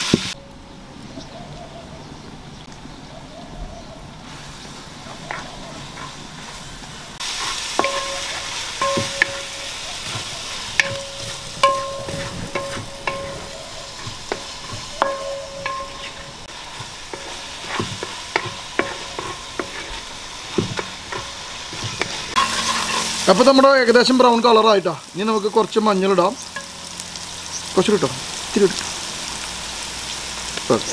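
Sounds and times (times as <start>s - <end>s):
onions sizzling in oil: 0.0s - 0.4s, 4.2s - 30.9s
spatula scraping a pan: 5.2s - 23.7s
spatula knocking metal pan: 7.7s - 23.5s.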